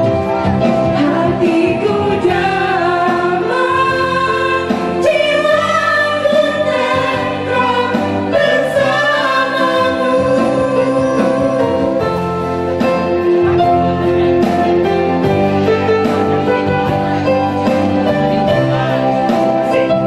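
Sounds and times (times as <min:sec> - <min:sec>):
instrumental backing with guitar: 0:00.0 - 0:20.0
woman singing love song: 0:01.0 - 0:12.1.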